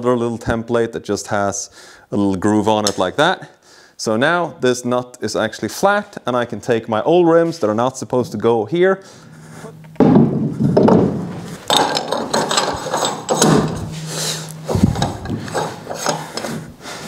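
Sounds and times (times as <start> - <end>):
hand tool clicking and knocking: 10.8 - 14.0, 14.7 - 16.6.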